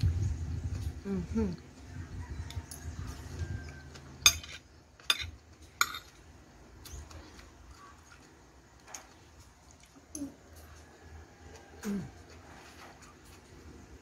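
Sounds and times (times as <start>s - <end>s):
metal spoon clinking on plate: 4.2s - 6.2s.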